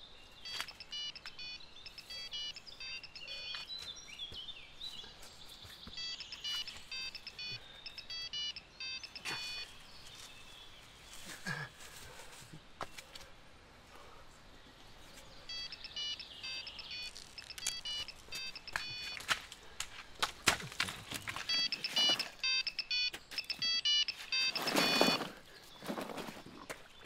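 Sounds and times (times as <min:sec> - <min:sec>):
phone ringtone beeps: 0:00.4 - 0:03.7, 0:06.0 - 0:09.8, 0:15.5 - 0:19.3, 0:21.4 - 0:25.3.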